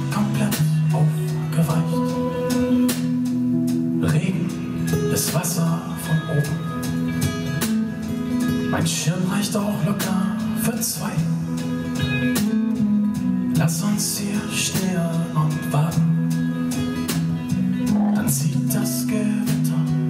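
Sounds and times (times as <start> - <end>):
man singing: 0.0 - 7.0, 8.6 - 12.5, 13.4 - 20.0
acoustic guitar strummed: 0.0 - 20.0
electric bass line: 17.2 - 20.0.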